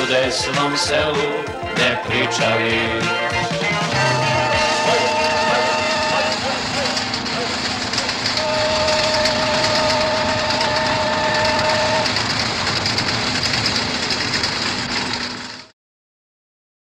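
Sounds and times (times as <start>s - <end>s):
train wheels rumbling and rattling: 3.6s - 15.7s
two-note train horn: 3.9s - 7.2s, 8.3s - 12.6s.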